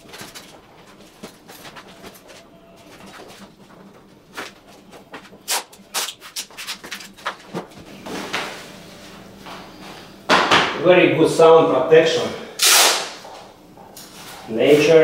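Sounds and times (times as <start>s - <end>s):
cork sheet rustling: 0.0s - 7.9s.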